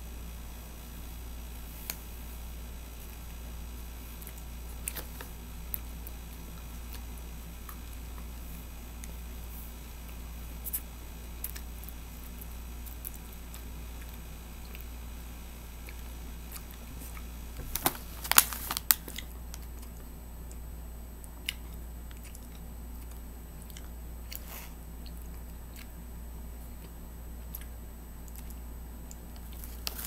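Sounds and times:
steady low hum: 0.0s - 30.0s
person chewing: 11.4s - 15.0s, 21.3s - 26.0s, 26.6s - 30.0s.

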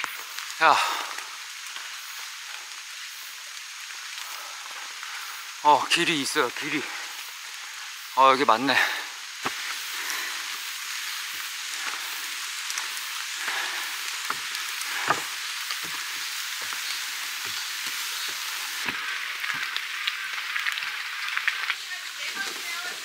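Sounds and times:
rain on leaves: 0.0s - 23.0s
footsteps on wooden stairs: 14.2s - 19.7s.

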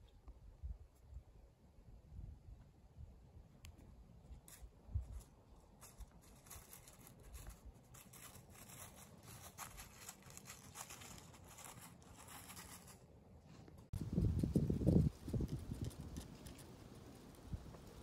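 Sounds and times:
rustling of dry leaves: 4.3s - 13.2s, 13.9s - 18.0s.

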